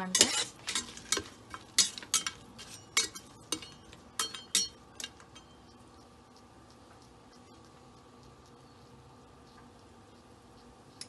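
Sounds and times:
utensil clinking against metal pot: 0.0 - 5.6.

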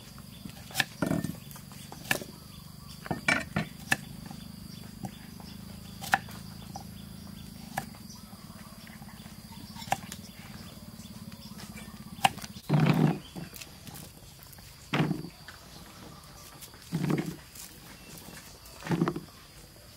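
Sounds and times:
steady low hum: 0.0 - 19.9
knife chopping on wooden board: 6.0 - 6.4.

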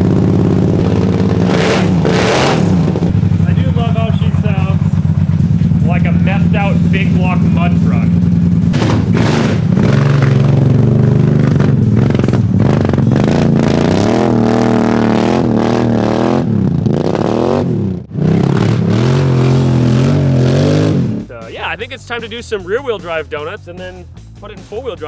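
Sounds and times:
small engine revving: 0.0 - 4.0, 6.9 - 21.4.

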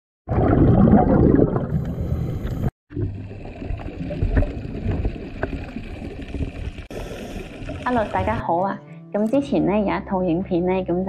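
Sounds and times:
underwater gurgling bubbles: 0.3 - 8.4.

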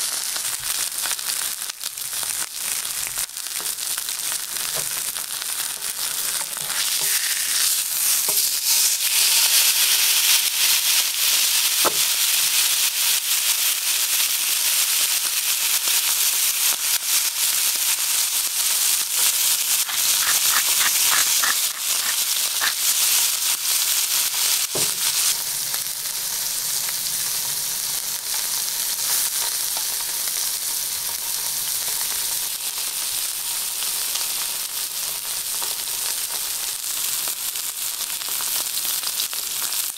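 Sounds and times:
steak sizzling in a pan: 0.0 - 39.9.

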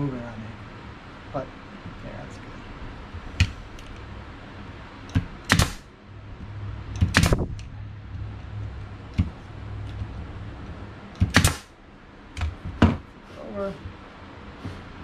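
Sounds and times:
low hum: 0.0 - 15.0
nail gun firing: 5.4 - 5.8, 7.0 - 7.5, 11.2 - 11.7.

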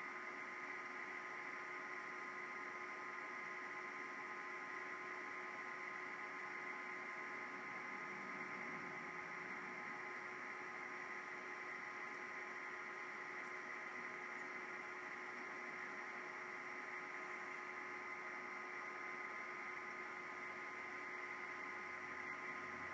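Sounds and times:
electrical hum and hiss: 0.0 - 22.9.

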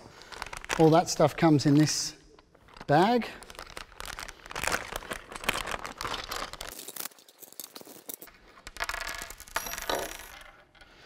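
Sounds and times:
plastic bag crinkling: 0.1 - 1.7, 2.5 - 8.4.

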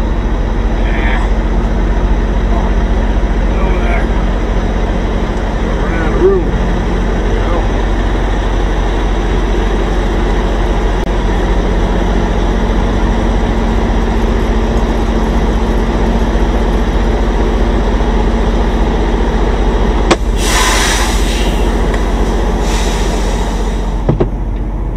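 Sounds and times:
diesel engine idling: 0.0 - 24.9
air brake hiss: 20.3 - 24.1.

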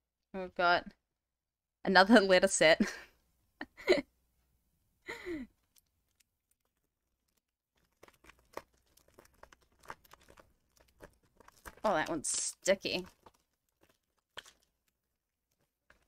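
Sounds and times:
person sighing: 5.1 - 5.5
plastic sleeve crinkling: 5.6 - 16.0.

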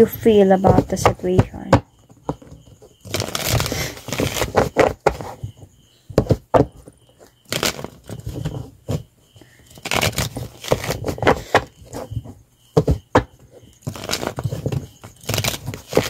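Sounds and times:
cards being shuffled: 7.5 - 8.2, 9.8 - 11.4, 13.8 - 16.0.

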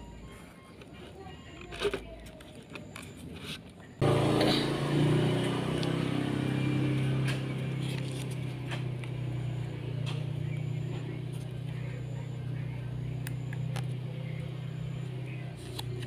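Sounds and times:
generator engine drone: 3.9 - 16.0.

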